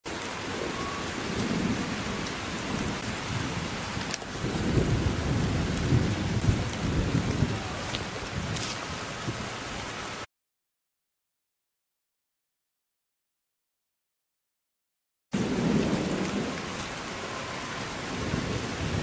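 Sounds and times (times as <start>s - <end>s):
thunder rumbling: 0.1s - 9.4s, 15.4s - 19.0s
rain hissing: 0.1s - 10.3s, 15.4s - 19.0s.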